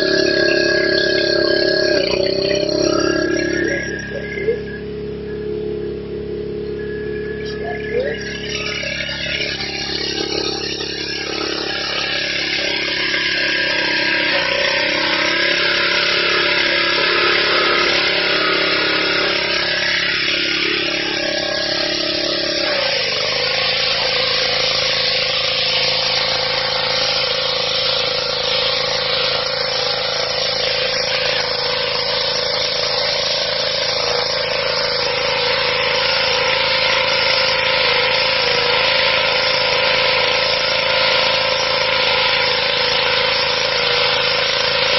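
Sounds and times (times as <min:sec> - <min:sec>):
pressure washer engine running: 0:00.0 - 0:44.9
water jet hissing on stone: 0:09.6 - 0:44.9.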